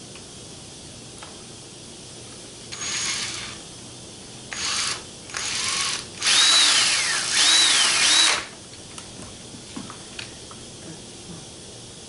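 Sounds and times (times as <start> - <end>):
cordless drill driving a screw: 2.7 - 3.6, 4.5 - 8.5.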